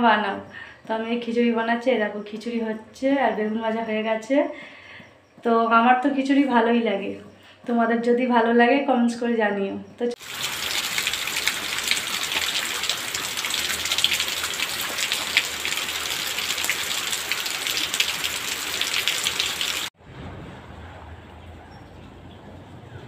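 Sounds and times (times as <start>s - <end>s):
rain pattering on ground: 10.2s - 19.9s.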